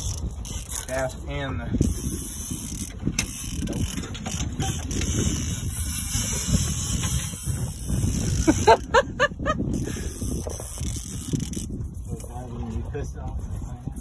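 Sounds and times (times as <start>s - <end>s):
fishing reel clicking: 0.0s - 8.8s, 9.7s - 12.3s
wind and sea rumble: 0.0s - 14.0s.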